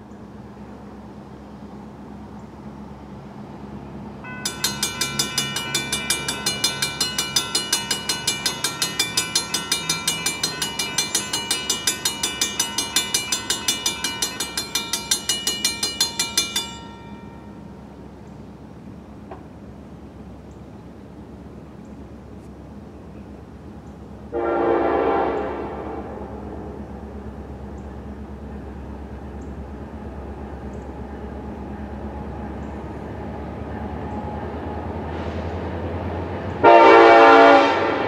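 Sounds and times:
railroad crossing bell ringing: 0:04.2 - 0:19.1.

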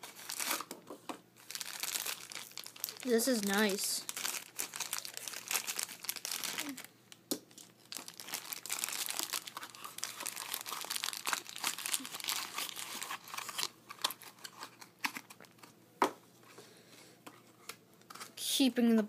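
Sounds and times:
plastic bag crinkling: 0:00.0 - 0:00.7, 0:01.4 - 0:06.9, 0:07.5 - 0:15.6.

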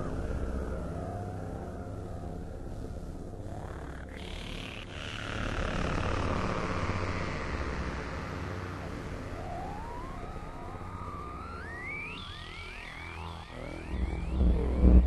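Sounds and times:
low sustained drone: 0:00.0 - 0:15.0
synth tones gliding upward: 0:09.2 - 0:15.0.

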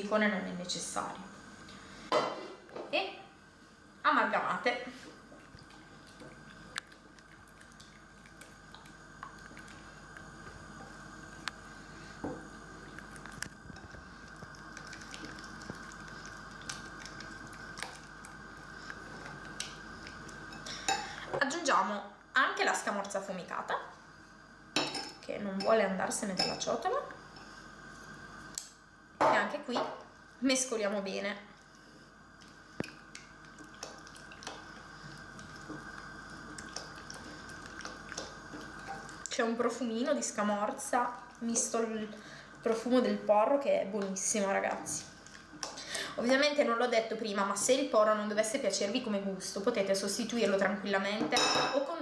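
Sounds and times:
wet squishing of stirred eggs: 0:05.2 - 0:10.6, 0:12.8 - 0:21.0, 0:31.5 - 0:39.4
spatula stirring wet eggs: 0:31.7 - 0:39.4.

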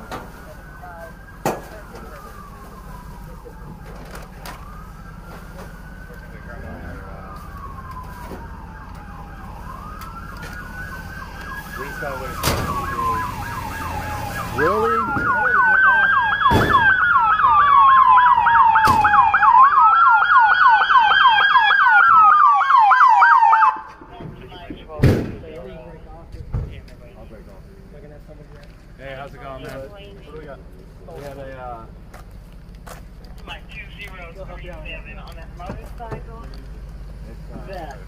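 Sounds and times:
police siren wailing and yelping: 0:00.0 - 0:24.9.

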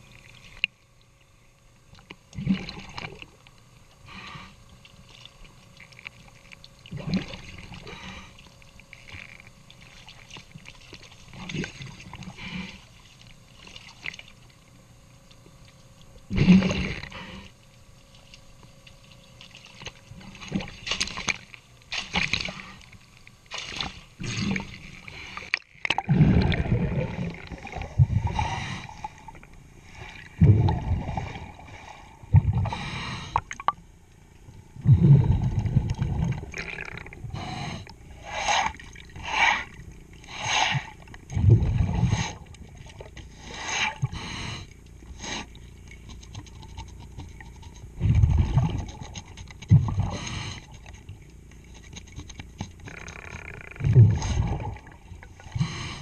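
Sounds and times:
underwater gurgling: 0:01.9 - 0:14.6, 0:15.5 - 0:17.5, 0:22.1 - 0:44.6, 0:45.2 - 0:52.1, 0:52.8 - 0:56.0
water sloshing against boat hull: 0:05.1 - 0:14.8, 0:18.0 - 0:32.6.

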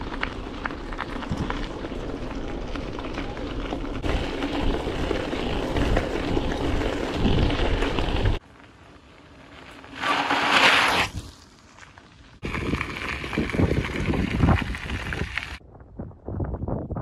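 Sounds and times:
bike tyres rattling over gravel: 0:00.0 - 0:15.6
tyres crunching on gravel: 0:00.0 - 0:15.6
wind on microphone: 0:12.4 - 0:17.0.

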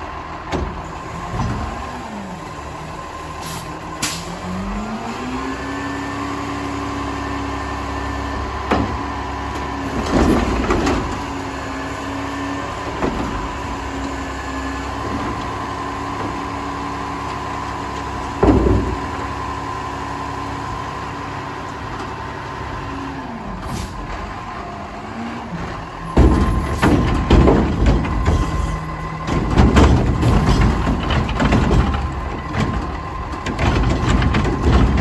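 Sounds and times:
garbage truck whine over engine: 0:00.0 - 0:35.0
loud clanks and thuds: 0:00.4 - 0:01.9, 0:08.6 - 0:11.5, 0:12.7 - 0:19.5, 0:25.6 - 0:35.0.

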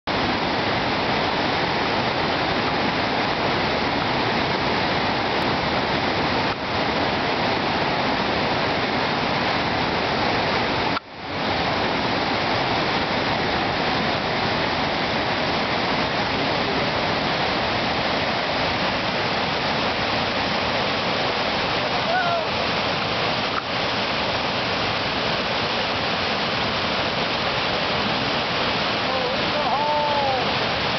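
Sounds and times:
whitewater rapid rushing: 0:00.1 - 0:30.9.

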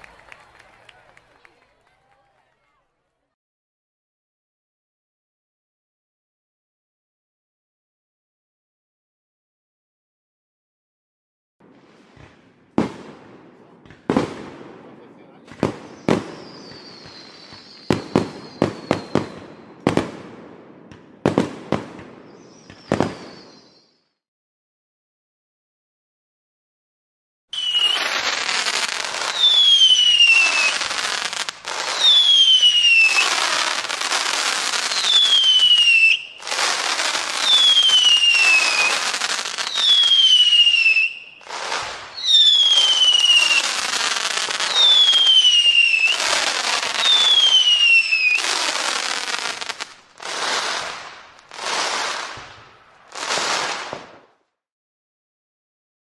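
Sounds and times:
fireworks crackling bursts: 0:11.6 - 0:24.0, 0:27.6 - 0:54.6
whistling fireworks: 0:11.6 - 0:24.2, 0:27.5 - 0:54.6.

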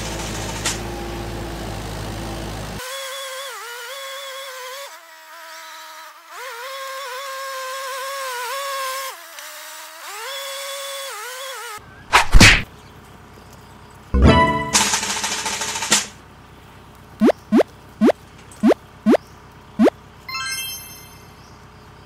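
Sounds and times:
tractor engine buzzing drone: 0:00.0 - 0:02.8, 0:17.2 - 0:19.2
loud whooshes: 0:12.1 - 0:12.6
sharp hit: 0:12.1 - 0:12.6.

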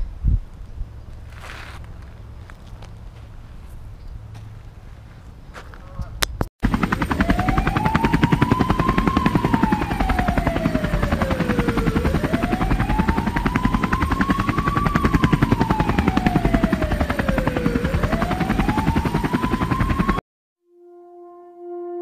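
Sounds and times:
helicopter rotor chopping: 0:06.6 - 0:20.2
wailing tone: 0:07.1 - 0:22.0.

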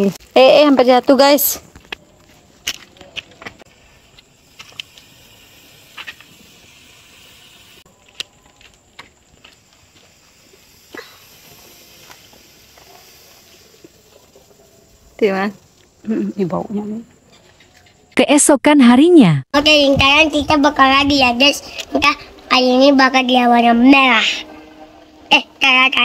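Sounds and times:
smoke ball burning hiss: 0:03.6 - 0:17.1, 0:19.6 - 0:23.7.

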